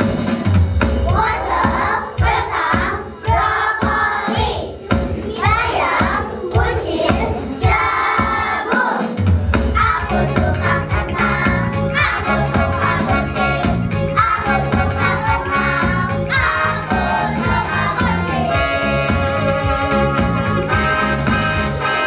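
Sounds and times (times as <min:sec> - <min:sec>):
music with steady beat: 0:00.0 - 0:22.0
group singing: 0:01.0 - 0:09.2, 0:09.8 - 0:19.1.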